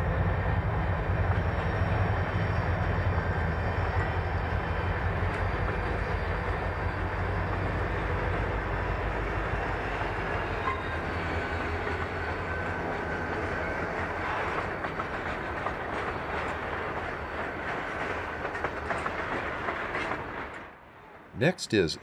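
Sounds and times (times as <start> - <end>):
freight train cars rumbling: 0.0 - 22.0
wheels clicking over rail joints: 13.4 - 20.7.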